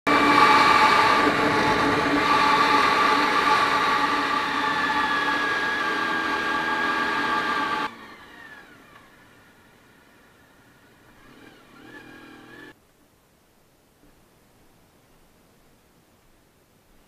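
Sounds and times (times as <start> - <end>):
wind rush: 0.1 - 6.9
motorcycle engine cruising: 0.1 - 12.8.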